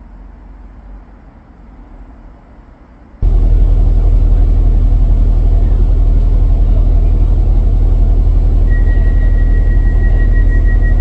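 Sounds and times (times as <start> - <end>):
train carriage rumble: 0.7 - 11.0
thin high tone: 8.4 - 11.0.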